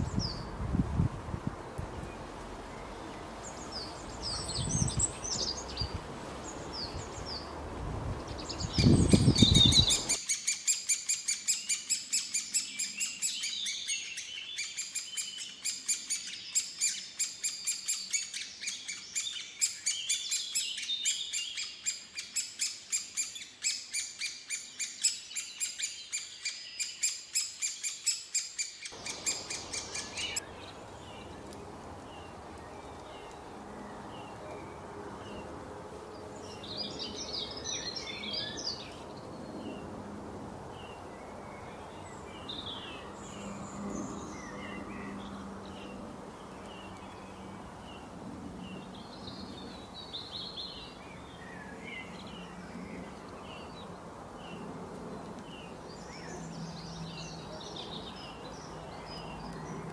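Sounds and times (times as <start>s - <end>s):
bird chicks begging calls: 28.9s - 30.4s.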